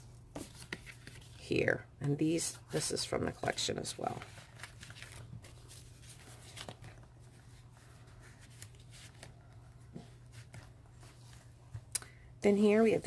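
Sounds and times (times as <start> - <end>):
paper pages rustling and clicking: 0.4 - 1.4, 2.9 - 11.8.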